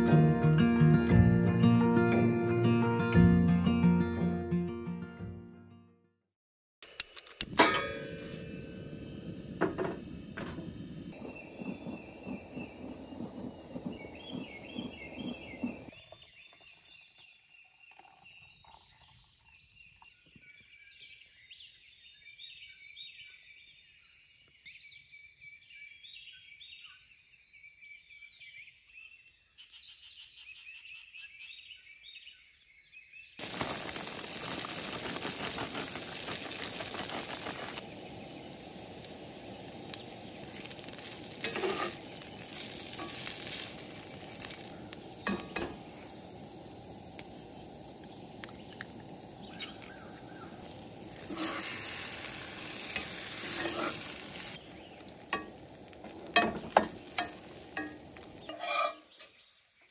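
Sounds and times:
songbirds chirping and singing: 11.1s - 33.4s, 37.8s - 59.9s
food frying sizzle: 33.4s - 59.9s.

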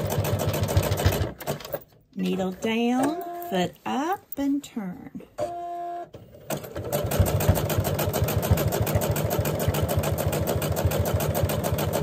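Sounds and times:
electric sewing machine running: 0.0s - 1.3s, 6.5s - 12.0s.

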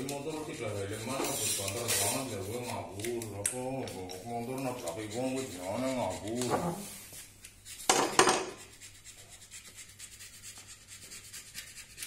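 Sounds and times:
faint workshop background: 0.0s - 12.0s
rag rubbing on metal: 0.0s - 12.0s.

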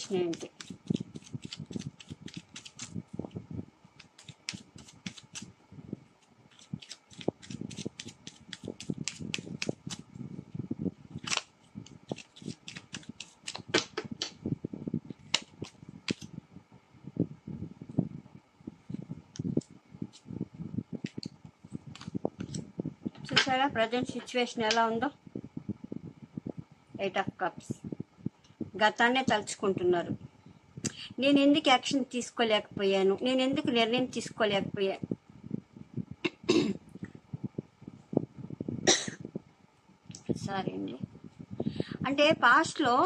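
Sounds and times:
cards shuffled by hand: 0.0s - 3.0s, 4.0s - 5.5s, 6.5s - 10.0s, 11.2s - 14.4s, 15.2s - 16.3s, 21.9s - 22.6s.

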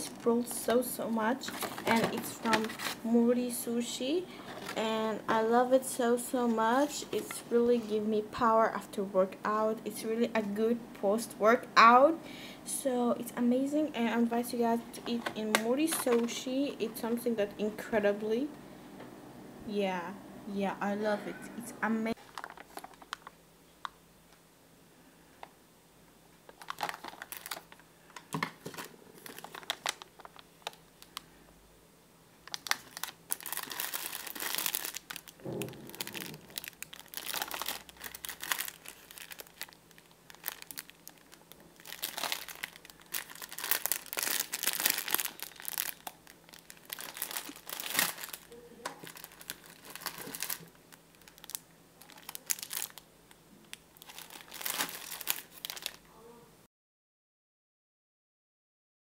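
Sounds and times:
plastic bags crinkling: 0.0s - 3.1s, 4.3s - 4.9s, 15.0s - 16.4s, 22.1s - 23.4s, 26.5s - 31.3s, 32.4s - 56.1s.

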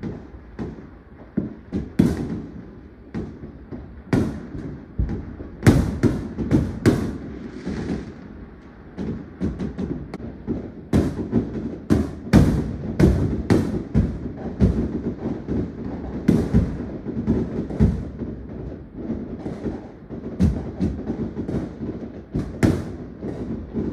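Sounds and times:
fireworks bangs and pops: 0.0s - 23.9s
firework hiss: 4.1s - 18.2s.

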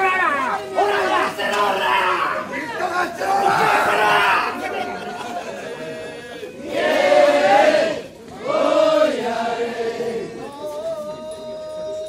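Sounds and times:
men chanting a work song: 0.6s - 12.0s.

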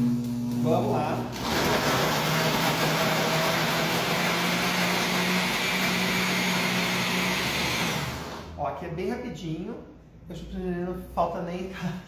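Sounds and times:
blender motor whirring: 1.3s - 8.6s.

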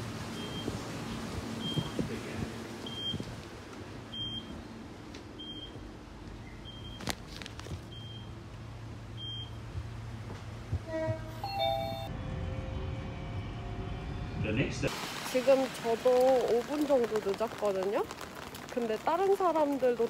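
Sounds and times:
low train hum: 7.8s - 18.0s.

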